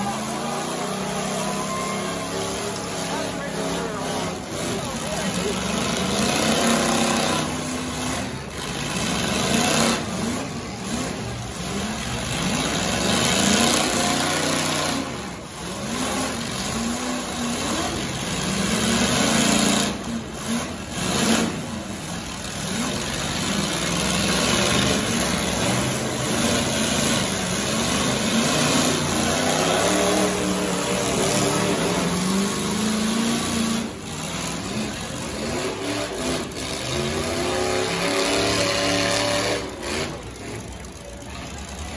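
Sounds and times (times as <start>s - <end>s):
truck engines revving: 0.0s - 41.9s.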